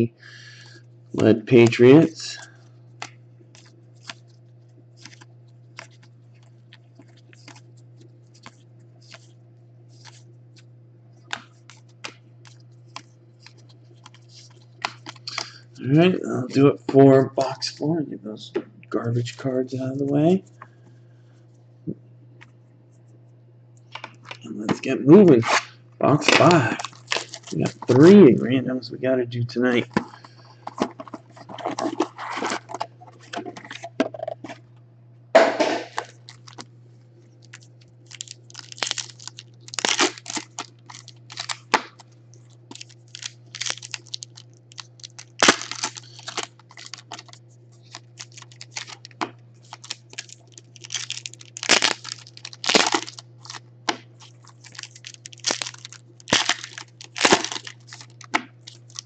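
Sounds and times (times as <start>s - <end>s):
steady low hum: 0.0s - 59.0s
foil wrappers crinkling and tearing: 1.2s - 10.2s, 11.3s - 15.6s, 25.4s - 28.2s, 29.7s - 33.9s, 35.9s - 36.7s, 37.3s - 59.0s.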